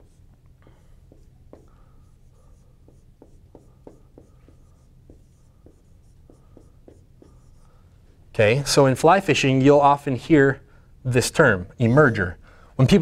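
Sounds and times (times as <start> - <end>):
marker writing on whiteboard: 0.0 - 7.8.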